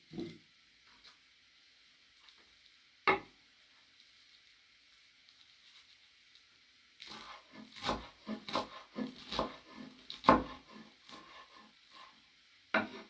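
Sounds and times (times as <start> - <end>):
knife chopping on wooden board: 7.1 - 11.5, 12.8 - 13.0.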